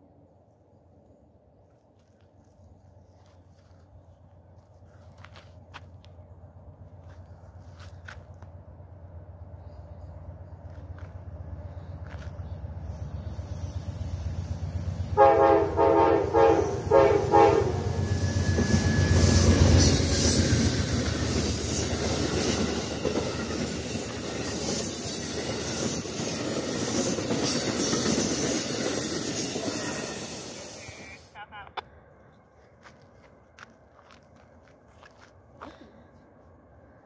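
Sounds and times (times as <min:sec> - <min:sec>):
train horn blasts: 0:15.1 - 0:19.4
train wheels clacking over rail joints: 0:18.5 - 0:30.5.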